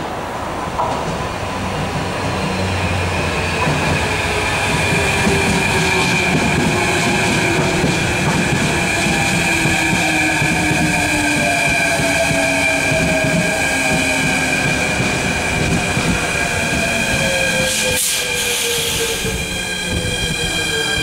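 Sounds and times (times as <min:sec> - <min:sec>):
train wheel squeal: 0:15.5 - 0:21.0.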